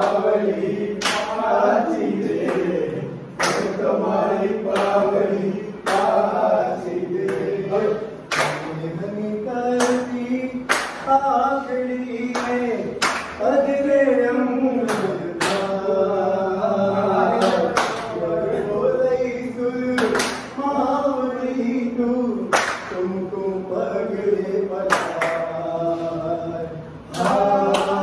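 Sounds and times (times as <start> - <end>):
hand claps: 0.0 - 3.9, 4.6 - 8.9, 9.6 - 13.6, 14.8 - 15.8, 17.3 - 18.2, 19.9 - 20.6, 22.4 - 23.2, 24.8 - 25.5, 27.0 - 28.0
men singing together: 0.0 - 28.0.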